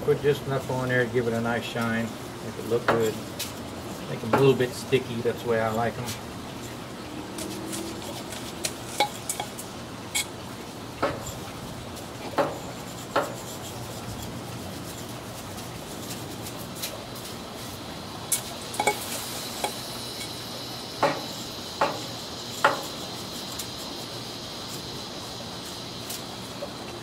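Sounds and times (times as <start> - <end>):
steady low hiss: 0.0 - 27.0.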